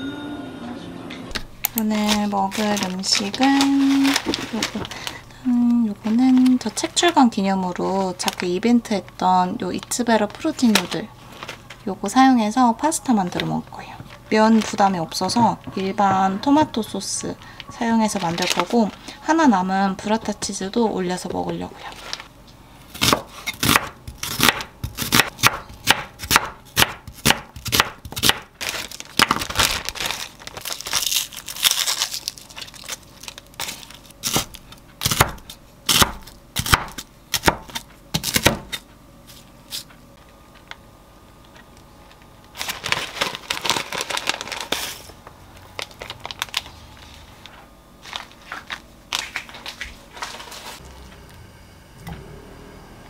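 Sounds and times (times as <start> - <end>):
paper crinkling: 1.6 - 11.9, 14.1 - 16.0, 16.8 - 19.2, 21.7 - 22.3, 28.2 - 34.8, 42.0 - 50.8
knife cutting through frozen bacon: 22.9 - 38.8
knife chopping onion on wooden board: 23.0 - 28.5, 34.3 - 38.8.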